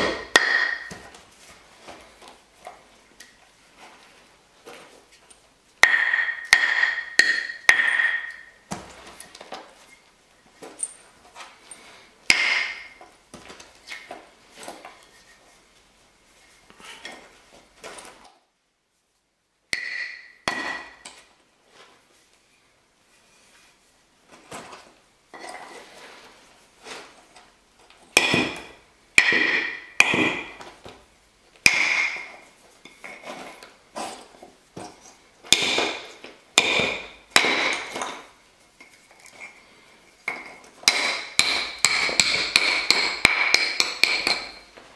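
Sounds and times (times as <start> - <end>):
stone striking stone: 0.0 - 1.1, 5.8 - 8.9, 12.3 - 13.0, 19.7 - 21.1, 28.2 - 30.6, 31.6 - 33.2, 35.5 - 38.3, 40.3 - 44.7.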